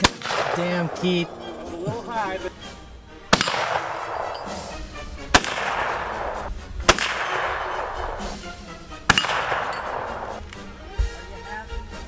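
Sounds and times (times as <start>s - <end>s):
gunshots with echo: 0.0s - 1.5s, 3.3s - 8.4s, 9.0s - 10.4s.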